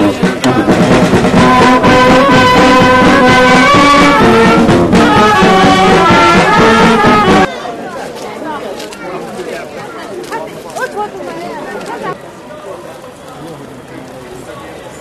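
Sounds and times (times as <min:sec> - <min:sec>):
brass band playing: 0:00.0 - 0:07.5.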